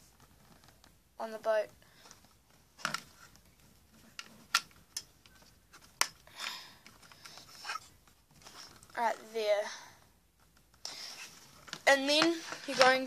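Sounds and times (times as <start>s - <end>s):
rustling scrape: 7.4s - 9.0s, 10.9s - 13.0s.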